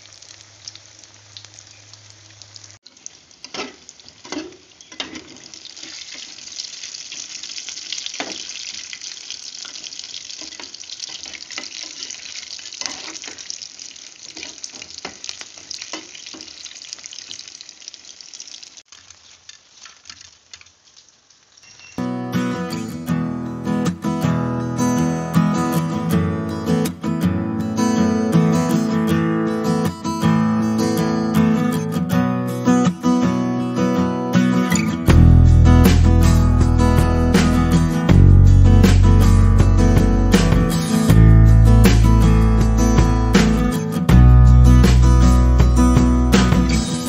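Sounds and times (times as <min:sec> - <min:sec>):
food deep-frying in hot oil: 0:00.0 - 0:22.0.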